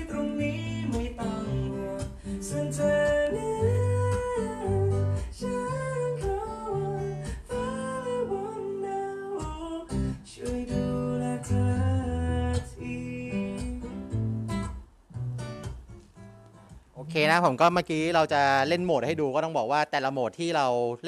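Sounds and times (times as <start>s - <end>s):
man singing: 0.0s - 14.0s
acoustic guitar: 0.0s - 19.2s.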